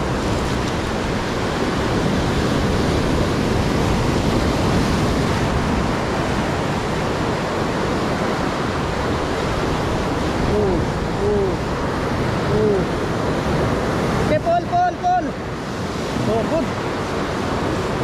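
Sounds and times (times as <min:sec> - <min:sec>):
surf breaking over rocks: 0:00.0 - 0:18.0.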